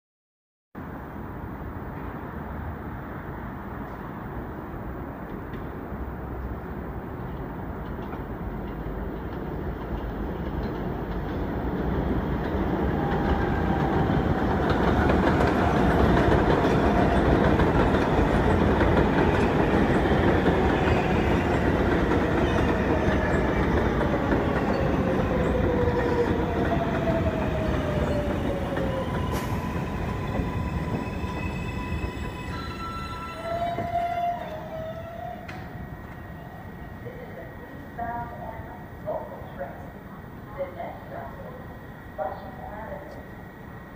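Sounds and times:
train wheels rumbling and clattering: 0:05.2 - 0:34.4
train whine falling in pitch: 0:24.6 - 0:37.0
steady high tone: 0:30.1 - 0:38.0.

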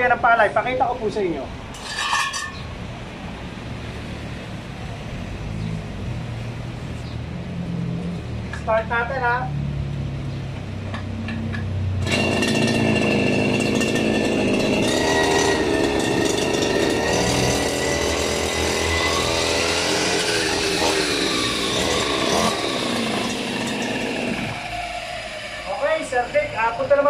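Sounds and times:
brush cutter engine revving: 0:12.0 - 0:26.7.

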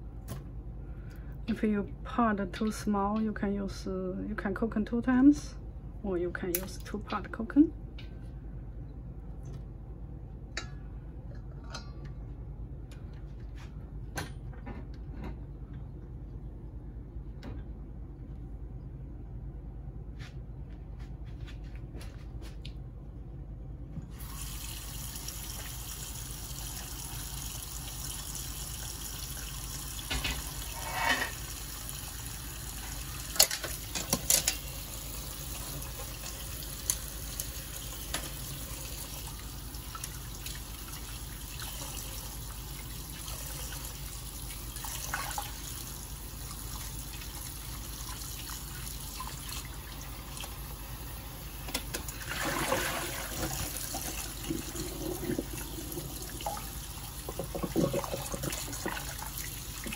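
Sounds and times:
tap water running into bowl: 0:51.7 - 0:59.9.

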